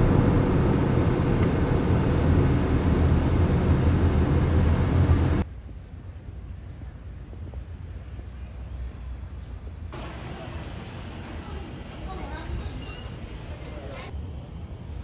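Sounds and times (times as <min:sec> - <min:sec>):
tyre and wind rumble: 0:00.0 - 0:10.0
faint hiss: 0:05.4 - 0:15.0.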